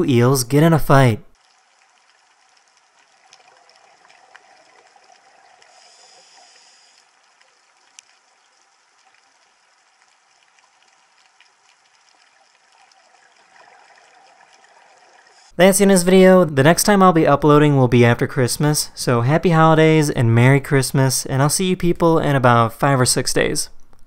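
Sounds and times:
small clicks and crackles: 1.4s - 15.5s
underwater hiss: 5.5s - 7.2s.

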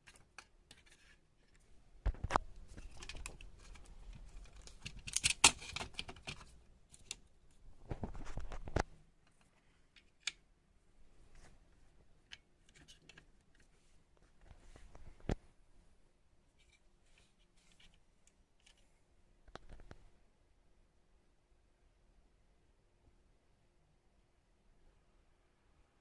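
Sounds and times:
laptop parts and tools clattering: 0.0s - 7.2s.

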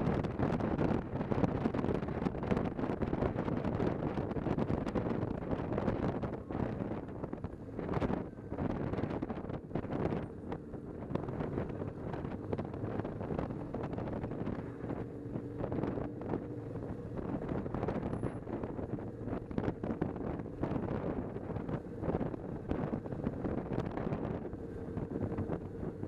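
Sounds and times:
motorcycle engine humming: 0.0s - 26.0s
wind rushing over microphone: 0.0s - 26.0s.

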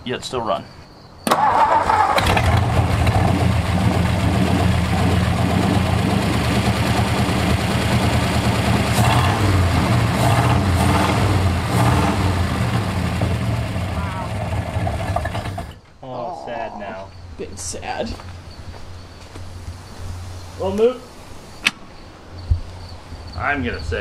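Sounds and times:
truck engine idling: 1.4s - 15.8s.

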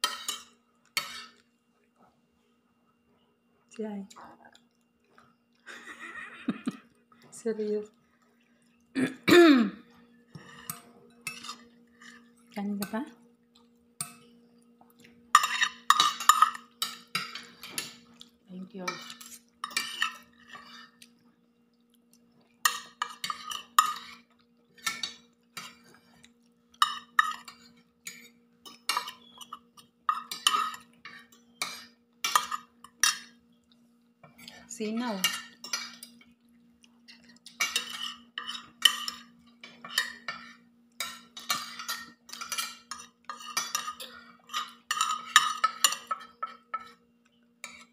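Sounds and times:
cutlery clinking against plate: 0.0s - 1.4s, 10.3s - 13.0s, 14.0s - 14.4s, 15.3s - 18.3s, 18.9s - 21.2s, 22.6s - 33.4s, 34.2s - 36.4s, 37.1s - 47.0s, 47.6s - 47.9s
faint steady hum: 0.0s - 47.9s.

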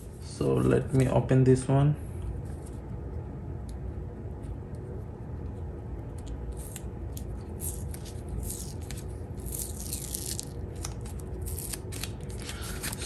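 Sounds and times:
steady low hum: 0.0s - 13.0s
packaging crinkling: 7.8s - 13.0s.

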